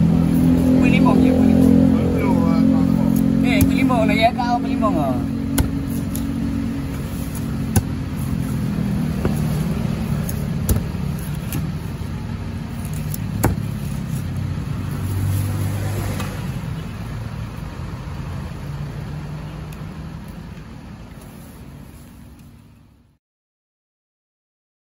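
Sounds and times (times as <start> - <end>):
vehicle engine humming: 0.0 - 23.2
cleaver chopping fish on wood: 3.1 - 3.9, 5.4 - 12.0, 12.8 - 14.1.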